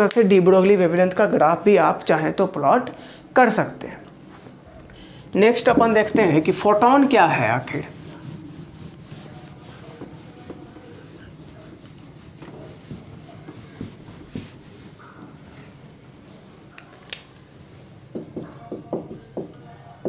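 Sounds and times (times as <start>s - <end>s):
eraser rubbing whiteboard: 5.6s - 15.4s, 18.1s - 20.0s.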